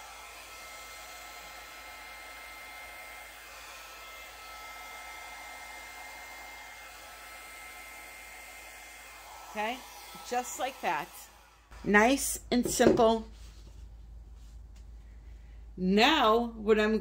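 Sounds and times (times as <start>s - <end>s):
hair dryer blowing: 0.0s - 13.0s.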